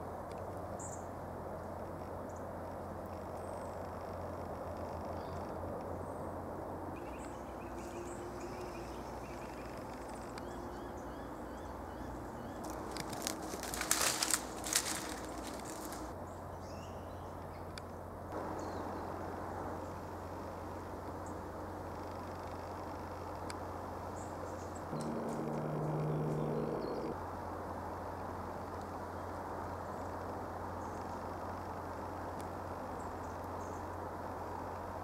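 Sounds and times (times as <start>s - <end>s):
crackling and snapping sticks: 12.6s - 16.2s
small bird chirping: 24.9s - 27.2s.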